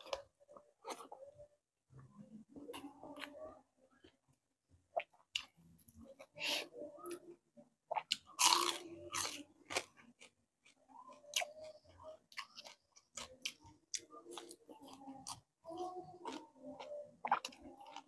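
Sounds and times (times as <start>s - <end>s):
person chewing crispy fried fish: 7.9s - 18.0s.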